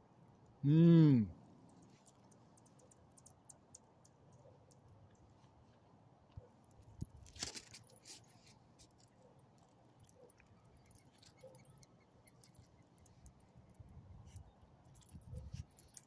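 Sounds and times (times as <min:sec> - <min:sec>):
small clicks: 0:01.7 - 0:05.5.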